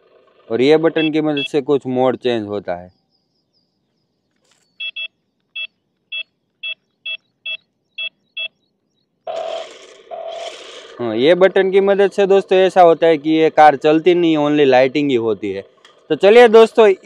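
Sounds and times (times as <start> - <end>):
short electronic beeps: 0.9 - 1.7, 4.5 - 10.5.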